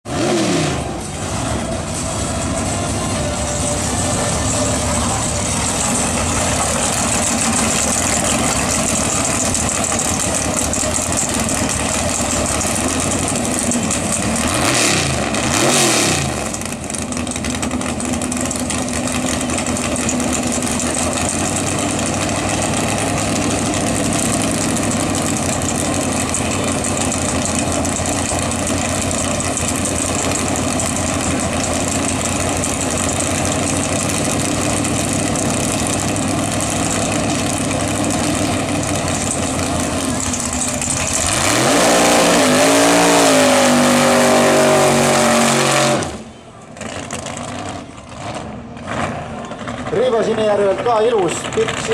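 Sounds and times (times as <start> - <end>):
race car engine: 0.0 - 51.9.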